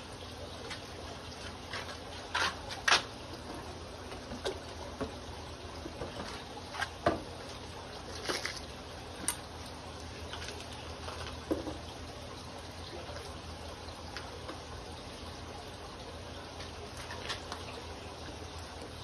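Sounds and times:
aquarium water trickling: 0.0s - 19.0s.

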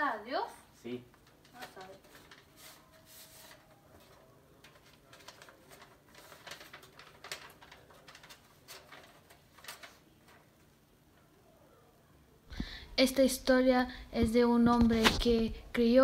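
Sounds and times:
faint room hum: 0.0s - 16.0s
paper rustling: 1.1s - 10.8s, 14.2s - 16.0s.

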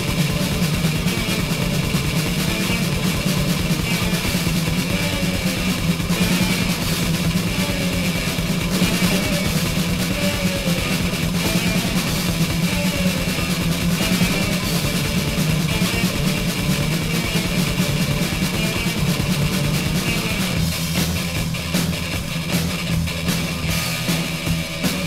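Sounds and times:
distorted electric guitars: 0.0s - 25.0s
drum kit playing: 0.0s - 25.0s.

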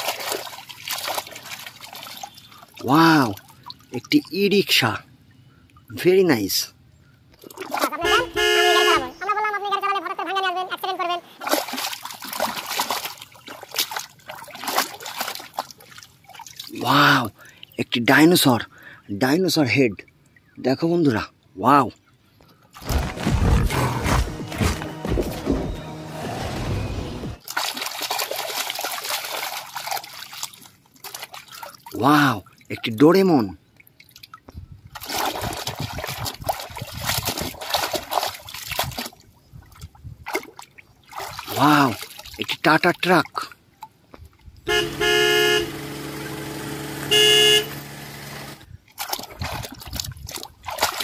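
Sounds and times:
water splashing and trickling: 0.0s - 23.6s, 27.4s - 47.0s, 47.6s - 51.0s
vehicle horn honking: 8.0s - 9.2s, 23.6s - 27.4s, 44.7s - 48.1s.

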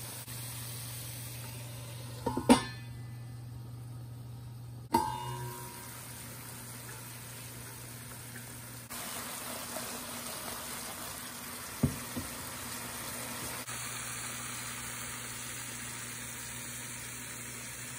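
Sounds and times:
food sizzling in a frying pan: 0.0s - 2.4s, 5.0s - 17.9s.

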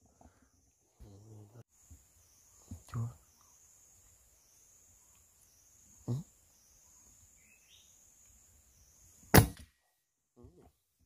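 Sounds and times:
insects droning: 0.0s - 9.6s
loud sharp crack: 9.3s - 9.7s.

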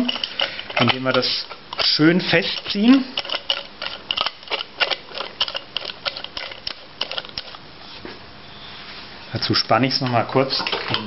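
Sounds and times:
metallic clicks and rattles: 0.0s - 7.6s.

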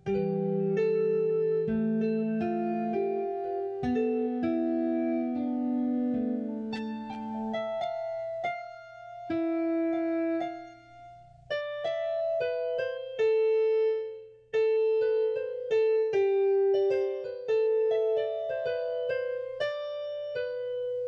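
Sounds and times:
slow electric piano melody: 0.0s - 21.0s.

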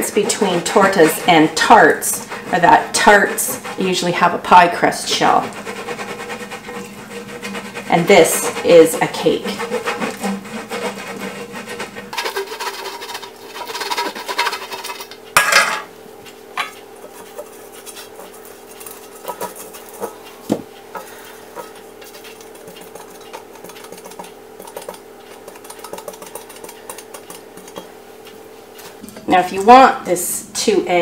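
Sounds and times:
pastry brush scraping metal pan: 0.0s - 15.6s, 16.6s - 27.9s
metal pan clattering: 6.0s - 15.9s.

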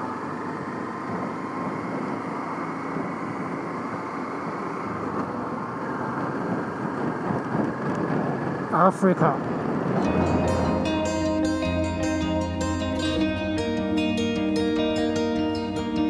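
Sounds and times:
motorcycle engine running: 0.0s - 8.7s, 9.4s - 16.0s
road noise: 0.0s - 16.0s
wind noise: 4.4s - 13.4s.

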